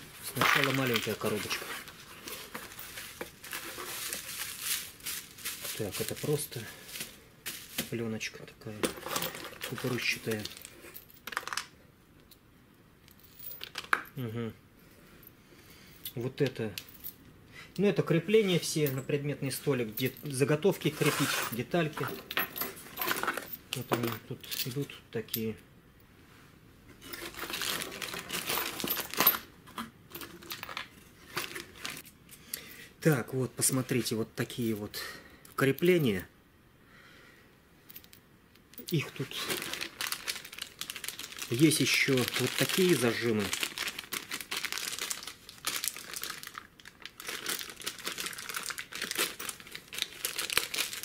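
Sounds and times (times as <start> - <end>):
plastic bags crinkling: 0.2 - 8.0, 8.8 - 11.7, 27.2 - 29.4, 30.4 - 32.0, 38.9 - 51.0.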